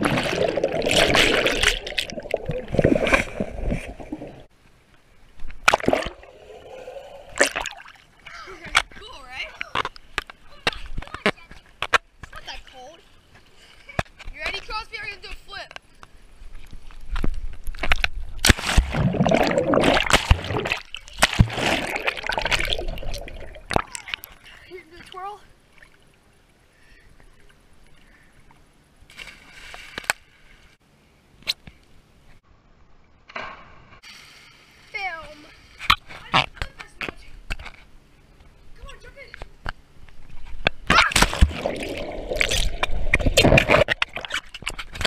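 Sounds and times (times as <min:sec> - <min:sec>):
sharp water splash: 0:00.0 - 0:04.4, 0:05.6 - 0:08.1, 0:18.4 - 0:24.2, 0:40.9 - 0:44.4
underwater sloshing and bubbling: 0:00.0 - 0:08.3, 0:16.3 - 0:28.9, 0:41.4 - 0:45.0.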